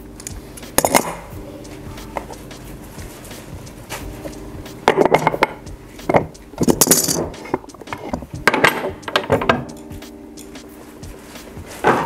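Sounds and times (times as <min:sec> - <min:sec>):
steel tools clinking: 0:06.6 - 0:07.4.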